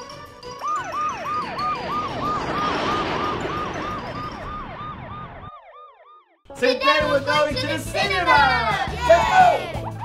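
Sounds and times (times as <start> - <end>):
police siren wailing: 0.5 - 6.4
rushing noise: 0.8 - 5.6.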